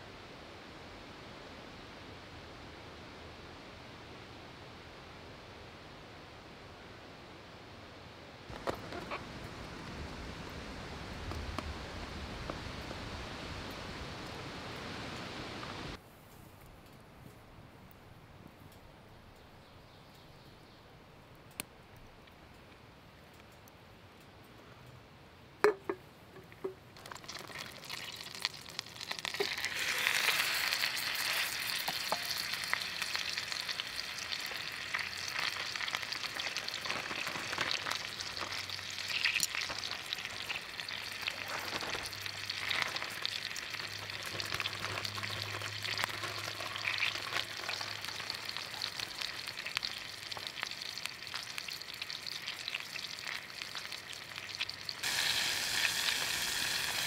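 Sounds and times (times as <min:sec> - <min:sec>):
steak sizzling in a pan: 0:27.0 - 0:57.0.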